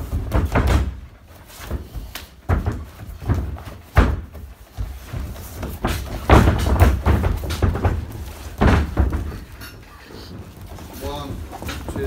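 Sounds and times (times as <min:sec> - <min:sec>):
bodies thudding on wrestling mat: 0:00.0 - 0:09.6.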